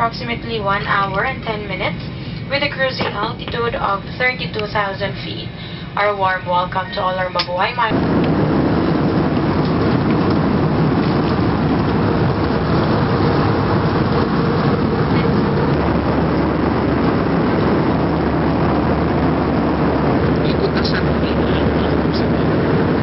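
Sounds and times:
jet engines roaring in cabin: 0:00.0 - 0:23.0
air rushing past fuselage: 0:07.8 - 0:23.0.

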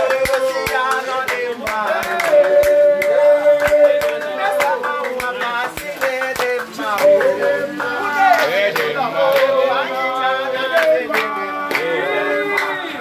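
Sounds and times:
hand claps: 0:00.0 - 0:09.6, 0:10.7 - 0:13.0
voices singing in unison: 0:00.0 - 0:13.0.

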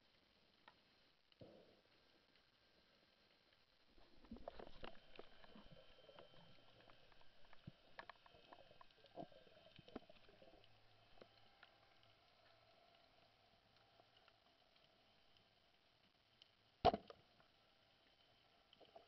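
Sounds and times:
faint low hum: 0:00.0 - 0:19.0
soft underwater clicks: 0:00.2 - 0:19.0.

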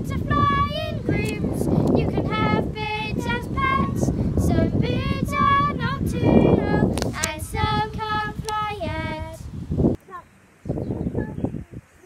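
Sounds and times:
girls singing together: 0:00.0 - 0:09.5.

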